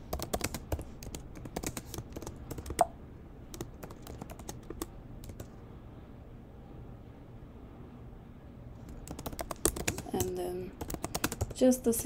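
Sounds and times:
computer keyboard key clicks: 9.0 - 11.6.

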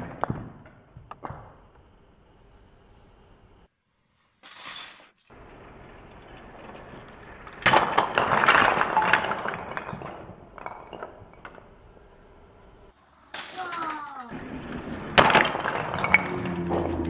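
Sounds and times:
toy car rolling on carpet: 4.2 - 10.2, 11.9 - 17.0
blocks clinking: 4.3 - 17.0
wooden blocks tumbling: 4.4 - 17.0.

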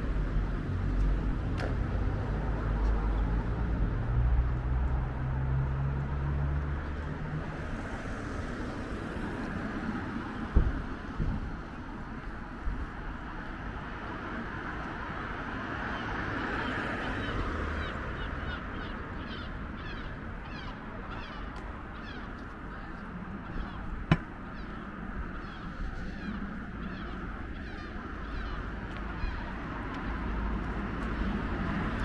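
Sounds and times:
city road traffic hum: 0.0 - 32.0
sharp knock: 24.1 - 24.3.

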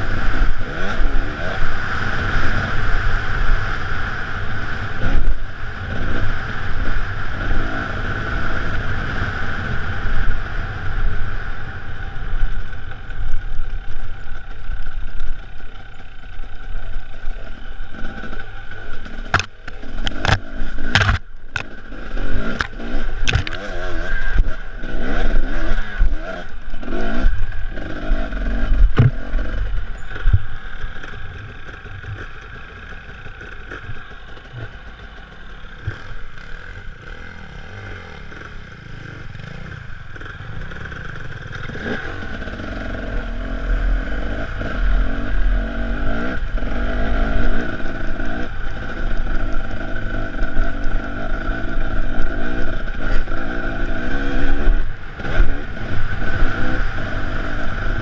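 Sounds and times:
dirt bike engine: 0.0 - 58.0
knocks and rattles over rocks: 19.2 - 21.7, 22.4 - 23.7, 28.8 - 29.2.

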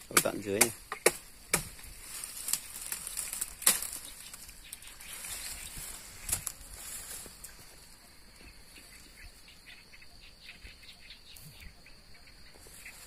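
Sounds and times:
hand tool chopping into earth: 0.0 - 1.9, 3.2 - 4.0
brush rustling: 0.0 - 9.5, 12.4 - 13.0.

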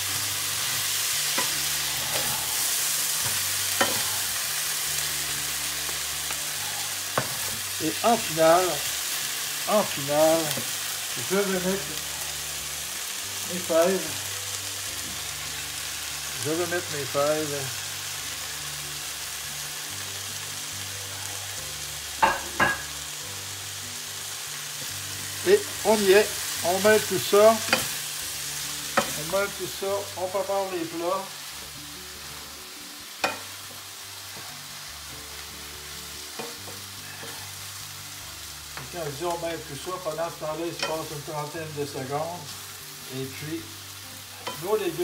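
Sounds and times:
vegetables sizzling in frying pan: 0.0 - 45.0.

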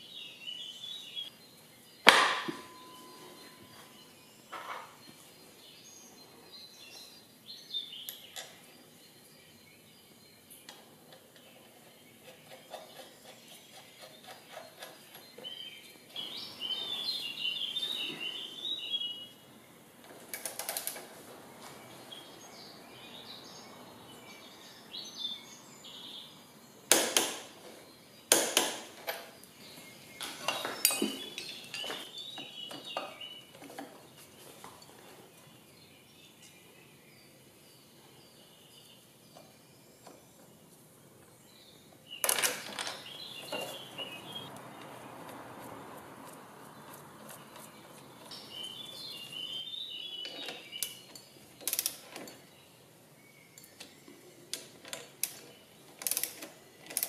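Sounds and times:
sharp metallic knocks: 2.0 - 3.4
metal tools clinking: 30.2 - 33.9.

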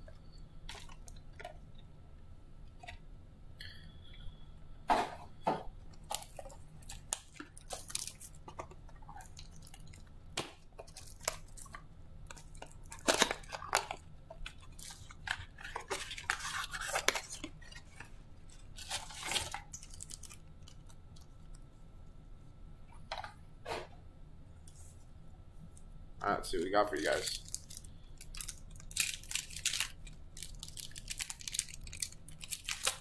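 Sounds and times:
foil packs rustling and crinkling: 6.1 - 8.7, 12.4 - 20.8, 27.0 - 33.0.

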